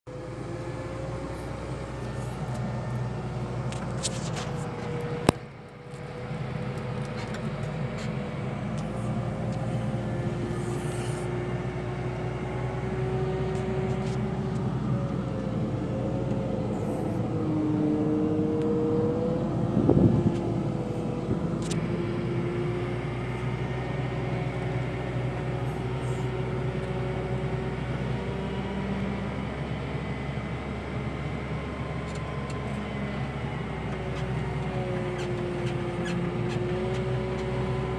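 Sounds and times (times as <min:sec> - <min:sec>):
wavering whine: 0:00.1 - 0:35.5
diesel engine running: 0:00.1 - 0:37.9.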